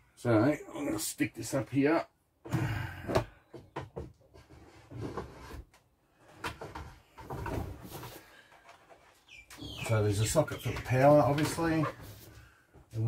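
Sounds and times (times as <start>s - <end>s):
small clicks and bumps: 3.1s - 13.0s.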